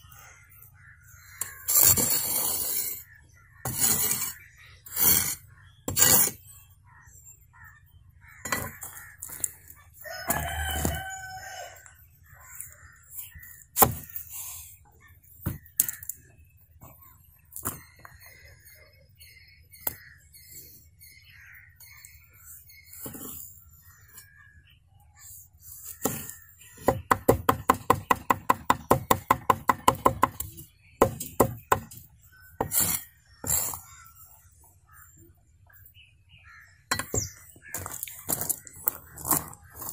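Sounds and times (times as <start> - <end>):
knife blade scraping board: 1.4 - 3.0, 3.6 - 6.4, 32.6 - 33.9
rooster crowing: 10.0 - 11.9
knife chopping on wooden board: 26.9 - 32.0.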